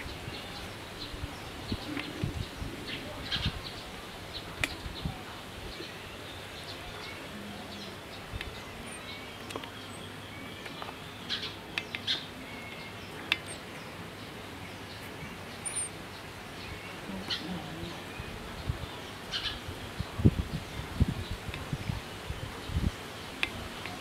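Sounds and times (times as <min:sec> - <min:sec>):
low ambient hiss: 0:00.0 - 0:24.0
small birds chirping: 0:00.0 - 0:24.0
sharp clicks: 0:11.8 - 0:12.2, 0:13.2 - 0:13.6.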